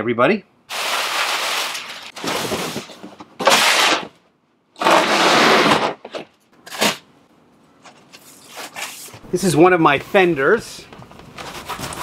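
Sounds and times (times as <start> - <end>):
cardboard boxes scraping: 0.7 - 4.2, 4.8 - 7.0, 11.4 - 12.0.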